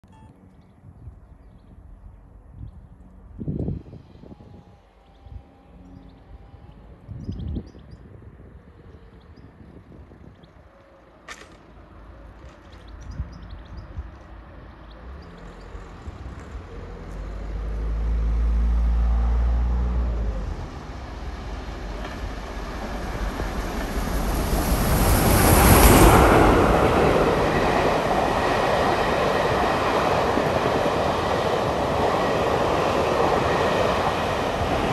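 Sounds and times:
steam locomotive passing: 0:15.0 - 0:34.9
train carriages rattling past: 0:19.3 - 0:34.9.

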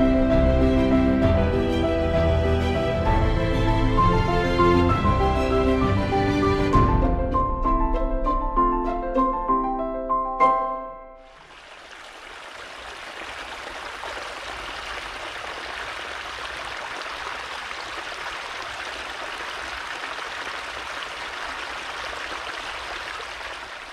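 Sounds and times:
brook running over gravel: 0:11.3 - 0:23.9.

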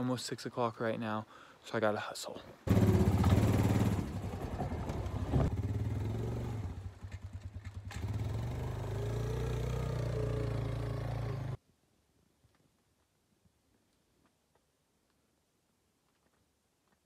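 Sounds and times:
atv engine running: 0:02.7 - 0:11.6.

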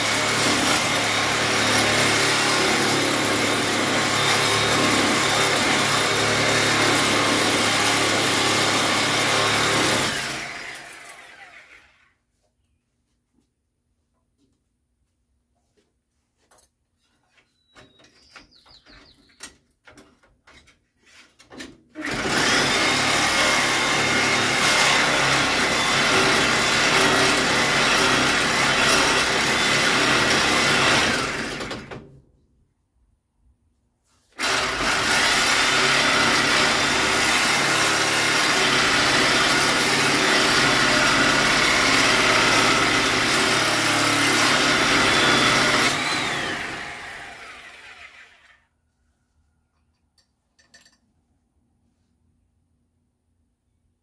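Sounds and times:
electric grinder grinding steel: 0:00.0 - 0:12.1, 0:22.0 - 0:31.7, 0:34.4 - 0:48.6.

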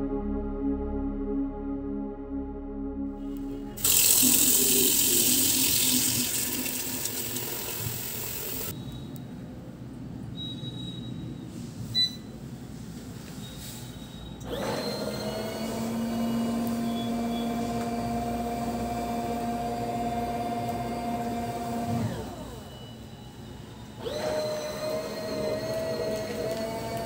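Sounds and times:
washing machine motor humming: 0:03.2 - 0:08.7, 0:14.5 - 0:22.6, 0:24.0 - 0:27.0.

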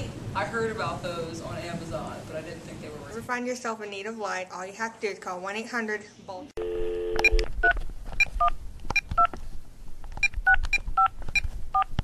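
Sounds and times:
telephone keypad beeps: 0:06.7 - 0:07.8.

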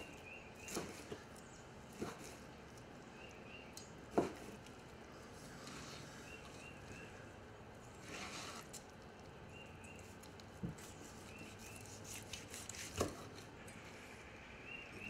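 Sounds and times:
knife slicing meat: 0:10.8 - 0:13.3.

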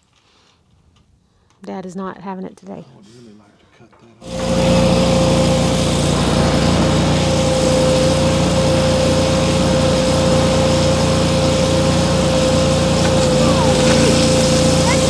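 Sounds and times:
welder generator engine droning: 0:04.2 - 0:15.0.

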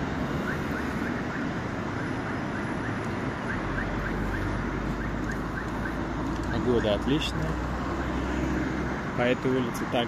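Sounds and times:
street traffic noise: 0:00.0 - 0:10.0.

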